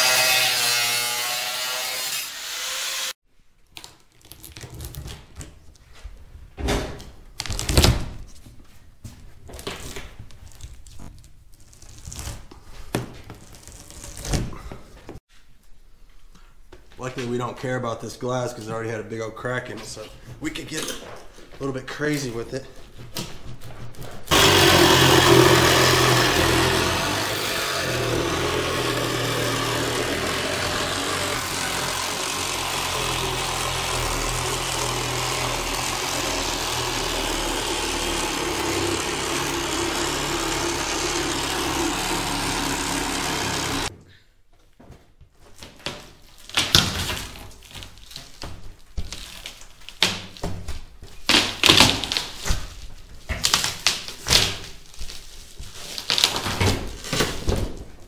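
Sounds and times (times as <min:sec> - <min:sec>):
reciprocating saw cutting glass: 0:00.0 - 0:03.2, 0:24.3 - 0:43.9.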